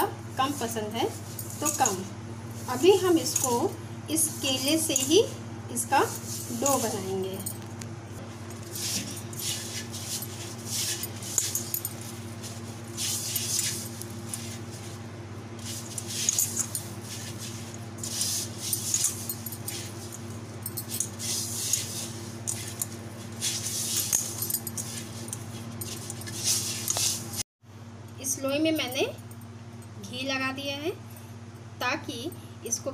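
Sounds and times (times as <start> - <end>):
steady low hum: 0.0 - 32.9
bangles jingling: 1.1 - 2.1, 2.7 - 3.8, 8.5 - 14.9, 15.6 - 27.4
dough squishing: 8.2 - 27.4.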